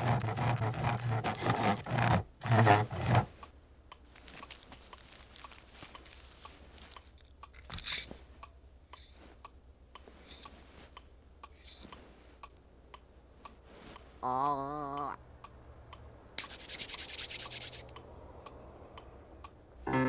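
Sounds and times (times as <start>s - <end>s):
faint regular ticking: 3.4s - 16.2s, 16.9s - 19.8s
nail file scratching: 16.4s - 17.9s.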